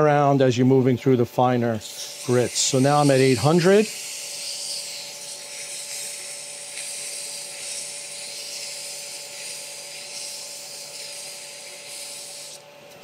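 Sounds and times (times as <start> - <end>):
lathe motor whine and hum: 0.0 - 13.0
wet sanding hiss: 1.8 - 12.6.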